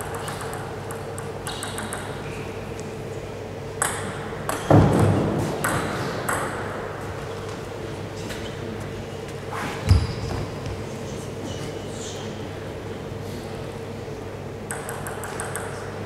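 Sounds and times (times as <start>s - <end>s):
table tennis ball hits: 0.0s - 2.2s, 3.8s - 6.7s, 14.7s - 15.9s.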